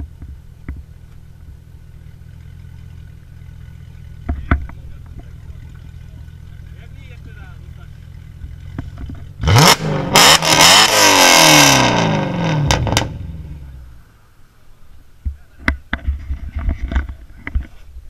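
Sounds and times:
car engine idling and revving: 0.0 - 18.0.

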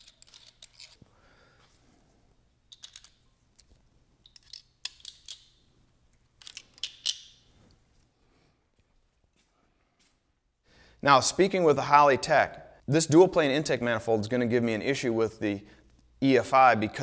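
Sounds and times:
metallic clicks of hand tools: 2.7 - 5.6.

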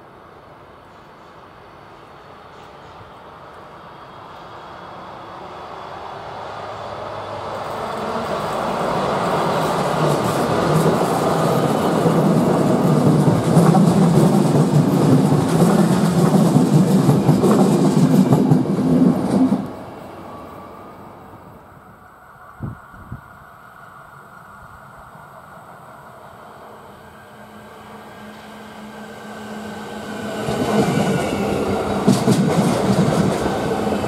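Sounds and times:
train wheels rumbling and clattering: 7.5 - 20.0, 29.5 - 34.0.

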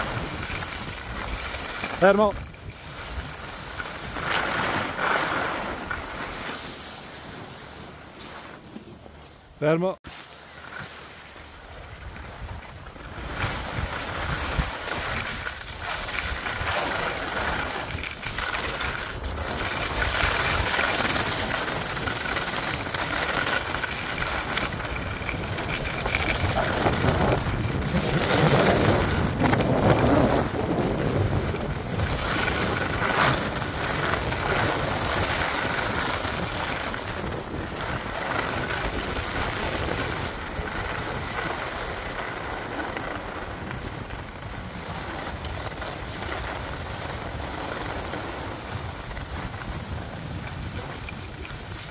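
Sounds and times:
skis scraping over snow: 0.0 - 51.9
wind buffeting microphone: 11.9 - 51.9.

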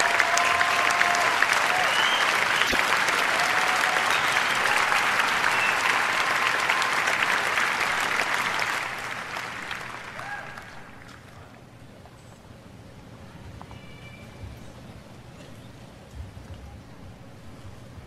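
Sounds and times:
crowd applauding: 0.0 - 11.7.

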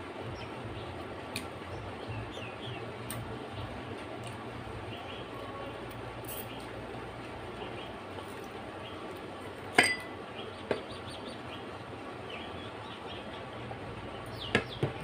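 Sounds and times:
steady low hiss: 0.0 - 15.0
tableware clinking: 9.8 - 10.2.

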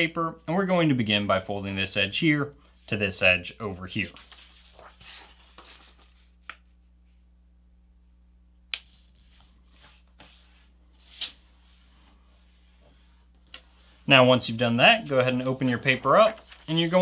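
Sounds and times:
paper rustling: 3.9 - 6.7, 8.8 - 17.0
paper being folded and creased: 4.0 - 6.6, 8.8 - 17.0.

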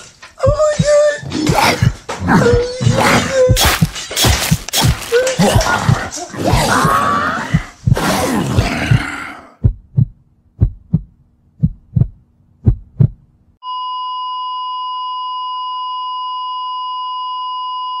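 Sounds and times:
heartbeat thumps: 0.4 - 6.1, 7.5 - 13.4.

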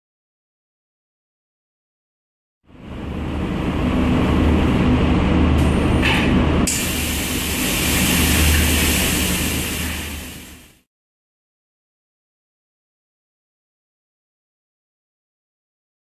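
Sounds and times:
hiss: 6.7 - 10.8.

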